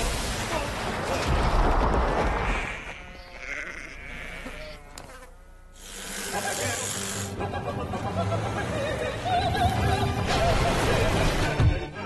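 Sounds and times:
goat bleating: 0:02.3 - 0:05.2.

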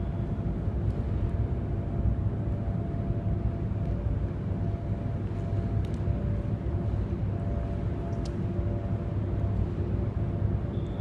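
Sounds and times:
faint even hum: 0:00.0 - 0:11.0
low mechanical rumble: 0:00.0 - 0:11.0.

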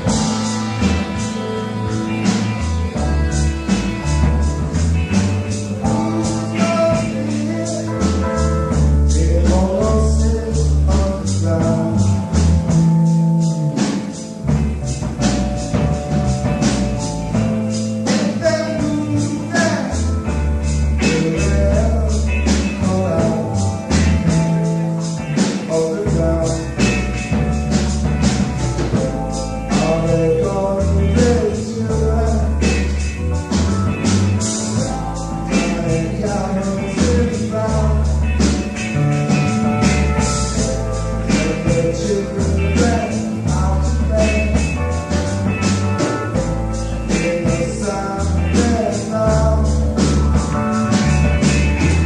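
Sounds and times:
bass guitar: 0:00.0 - 0:52.0
drum kit: 0:00.0 - 0:52.0
rock band playing live: 0:00.0 - 0:52.0
man singing: 0:05.4 - 0:14.2, 0:18.0 - 0:27.7, 0:28.8 - 0:33.3, 0:34.3 - 0:52.0.

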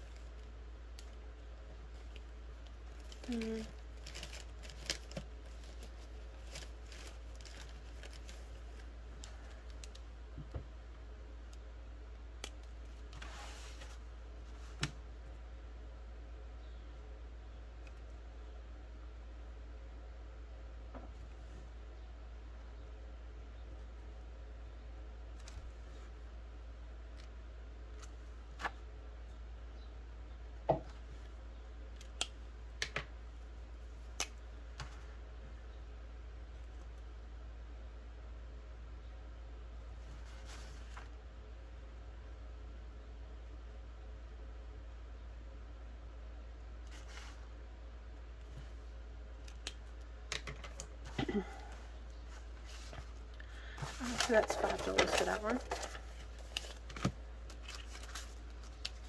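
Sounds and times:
steady low hum: 0:00.0 - 0:59.0
paper rustle: 0:01.8 - 0:09.9, 0:40.0 - 0:41.2, 0:46.9 - 0:47.5, 0:52.2 - 0:59.0.

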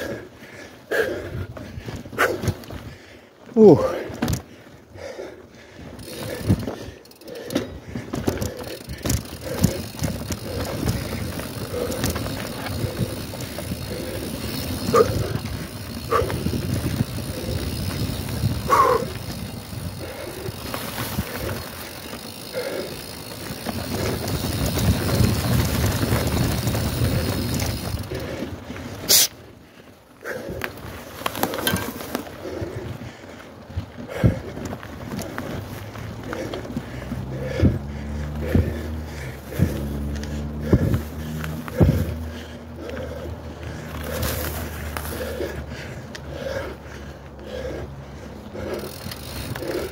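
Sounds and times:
bike tyres rumbling on dirt: 0:00.0 - 0:49.9
chain and frame rattling: 0:05.9 - 0:29.3, 0:30.4 - 0:32.8, 0:48.4 - 0:49.9.

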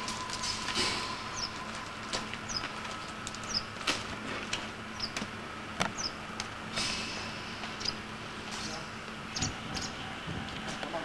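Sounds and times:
small bird chirping: 0:06.0 - 0:06.2, 0:07.8 - 0:08.0, 0:09.3 - 0:10.0.

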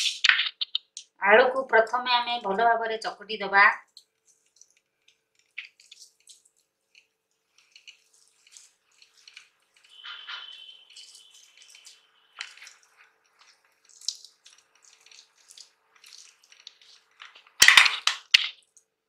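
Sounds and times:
wet squishing of mashed potatoes: 0:03.8 - 0:19.0.

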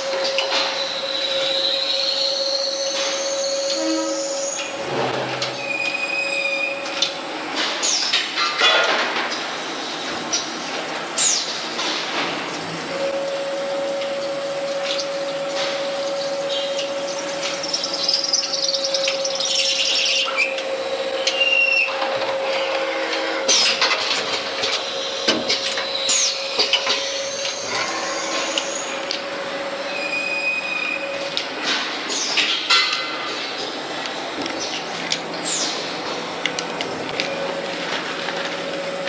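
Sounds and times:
short high squeals: 0:00.7 - 0:04.7, 0:29.9 - 0:31.1.

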